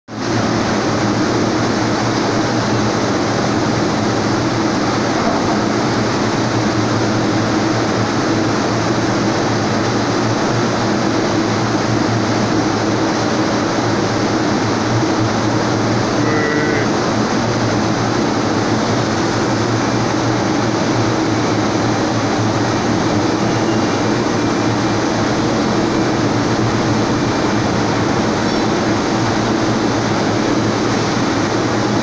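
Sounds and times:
industrial machinery noise: 0.1s - 32.0s.

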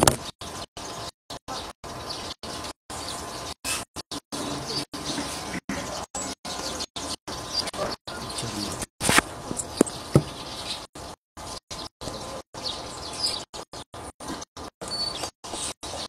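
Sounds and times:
small birds chirping: 0.1s - 16.0s
sharp knocks: 9.5s - 10.4s.

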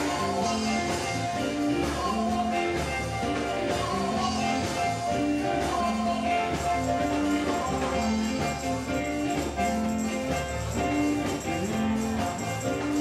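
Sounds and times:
voices singing: 0.0s - 8.7s
gospel band music: 0.0s - 13.0s.

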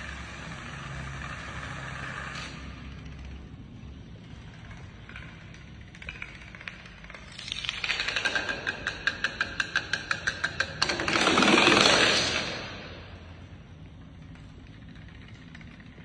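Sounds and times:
plastic dominoes clacking: 5.0s - 12.8s.

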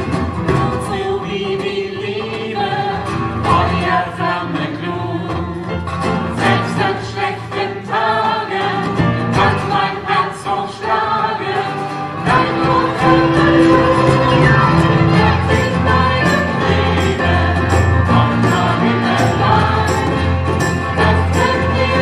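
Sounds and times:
acoustic band playing: 0.0s - 22.0s
voices singing together: 0.0s - 22.0s.

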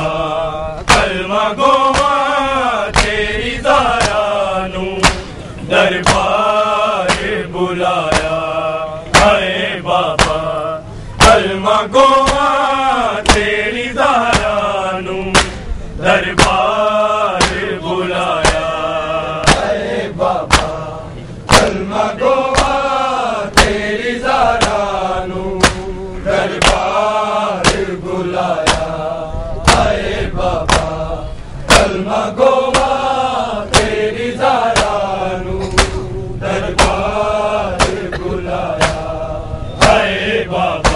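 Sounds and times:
group of men chanting a lament: 0.0s - 40.9s
hands slapping bare chests: 0.9s - 1.2s, 1.9s - 2.3s, 2.9s - 3.2s, 4.0s - 4.3s, 5.0s - 5.3s, 6.0s - 6.4s, 7.0s - 7.4s, 8.0s - 8.5s, 9.2s - 9.5s, 10.2s - 10.4s, 12.2s - 12.6s, 13.2s - 13.5s, 14.3s - 14.6s, 15.3s - 15.6s, 16.4s - 16.7s, 17.4s - 18.8s, 19.4s - 19.8s, 20.4s - 20.8s, 21.5s - 21.8s, 22.5s - 22.8s, 24.6s - 24.8s, 25.6s - 25.9s, 26.5s - 27.0s, 27.6s - 28.0s, 28.6s - 29.0s, 29.7s - 29.9s, 30.6s - 31.0s, 31.7s - 32.0s, 32.7s - 33.0s, 33.7s - 34.0s, 34.7s - 35.0s, 35.7s - 36.0s, 36.7s - 37.1s, 37.8s - 38.1s, 38.7s - 39.1s.

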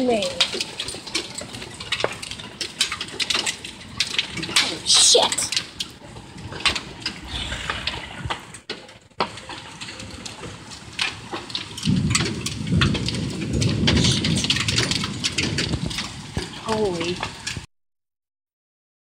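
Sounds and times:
hailstones striking house: 0.0s - 17.7s
heavy rain: 0.0s - 17.7s
low rumble: 5.7s - 9.2s.

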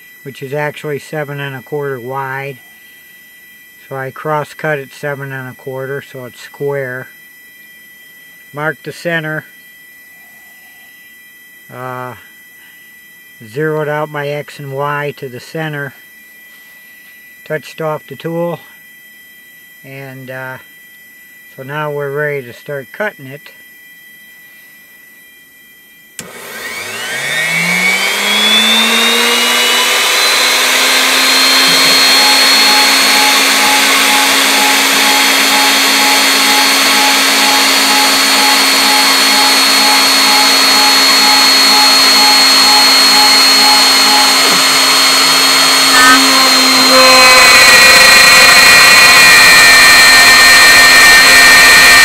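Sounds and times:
router spindle whine: 0.0s - 52.0s
router bit cutting wood: 26.2s - 52.0s.

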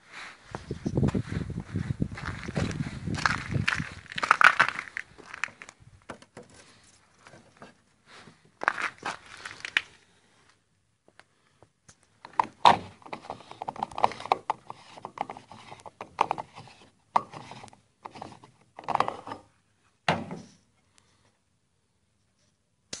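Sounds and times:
plastic clicks and rattles: 11.9s - 16.5s
plastic fuel cap being unscrewed: 12.3s - 19.5s.

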